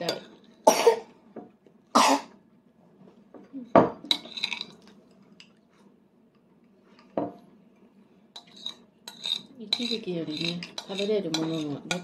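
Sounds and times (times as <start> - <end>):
spoon clinking against a dish: 8.4 - 12.0.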